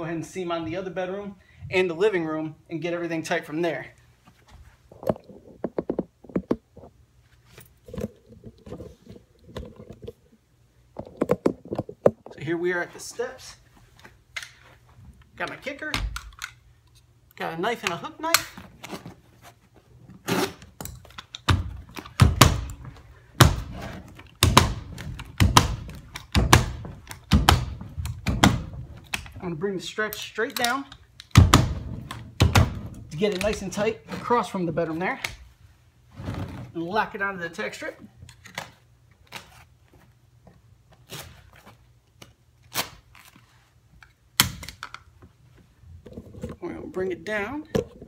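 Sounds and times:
carpet rustling: 4.0 - 10.4, 17.7 - 31.0.

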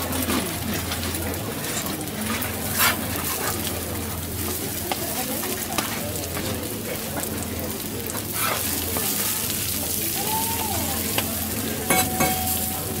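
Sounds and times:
food sizzling on a griddle: 0.0 - 13.0
metal spatulas clacking and scraping: 11.9 - 12.7.

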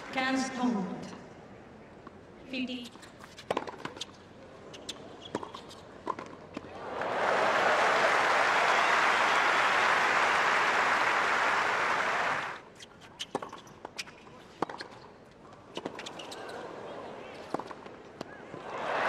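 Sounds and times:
crowd applause: 6.8 - 12.6, 18.6 - 19.0.

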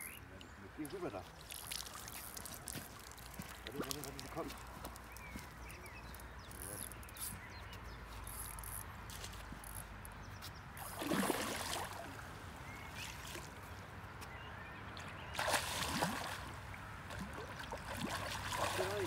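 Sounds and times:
fish splashing and thrashing in water: 1.2 - 5.2, 10.8 - 12.2, 15.3 - 19.0.

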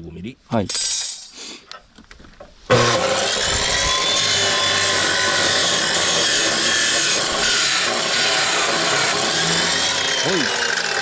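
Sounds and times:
cut-off saw cutting metal pipe: 2.7 - 11.0.

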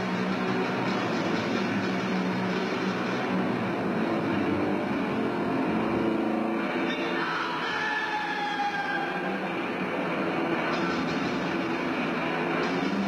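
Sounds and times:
distorted electric guitar: 0.0 - 13.0.

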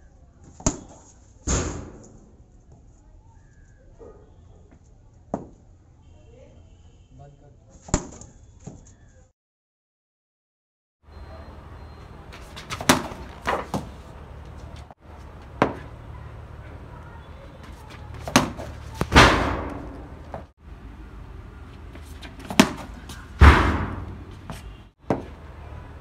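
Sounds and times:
cricket bat hitting ball: 0.6 - 2.1, 12.4 - 14.0, 15.6 - 15.9, 18.1 - 20.5, 22.2 - 25.4.

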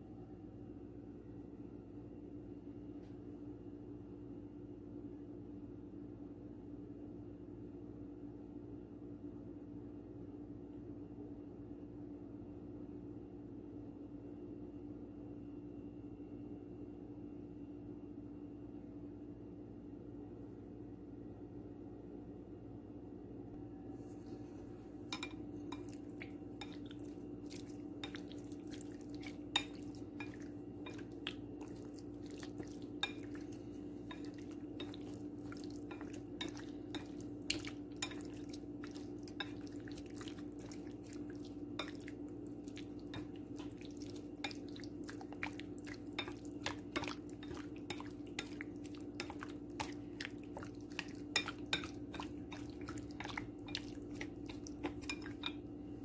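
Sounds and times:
steady low hum: 19.9 - 56.0
chopsticks tapping ceramic bowl: 25.1 - 55.7.

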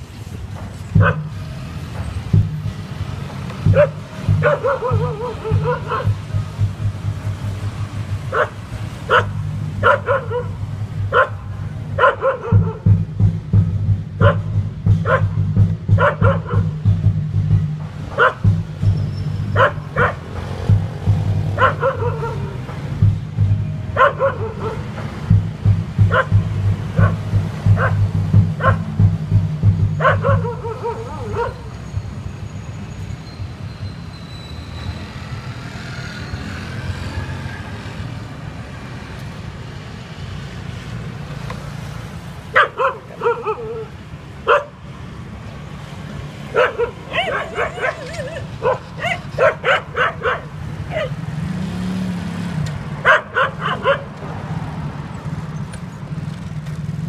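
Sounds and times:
dog barking: 1.0 - 1.3, 3.7 - 6.3, 8.3 - 12.9, 14.2 - 15.4, 16.0 - 16.7, 18.1 - 18.5, 19.5 - 20.3, 21.6 - 22.8, 24.0 - 25.0, 26.1 - 28.0, 28.6 - 28.9, 29.9 - 31.7, 42.5 - 44.8, 46.4 - 51.2, 53.0 - 54.2.

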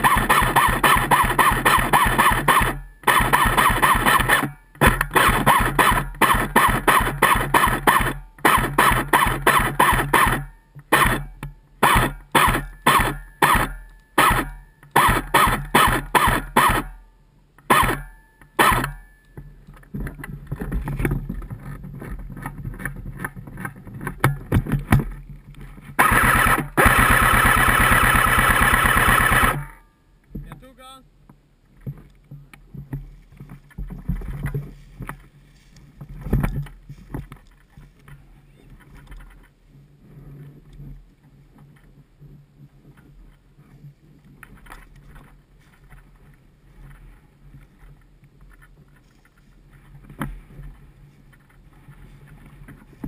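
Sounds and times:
airsoft rifle firing bursts: 0.0 - 17.0, 17.7 - 19.0, 26.0 - 29.8.

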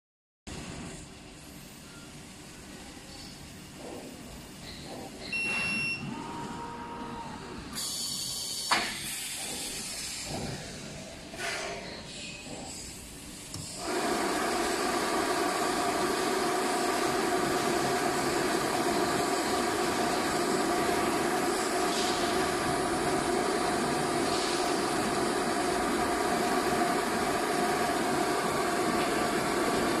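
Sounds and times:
machine whining and whirring: 0.7 - 30.0
faint short hisses: 7.8 - 13.0.

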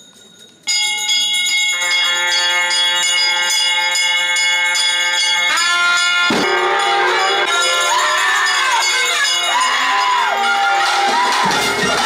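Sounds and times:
temple bell ringing: 0.0 - 12.0.

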